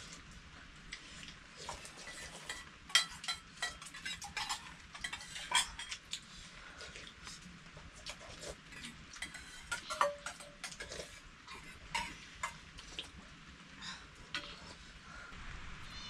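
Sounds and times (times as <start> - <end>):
metal utensils and dishes clinking: 1.6 - 6.1, 8.1 - 12.9.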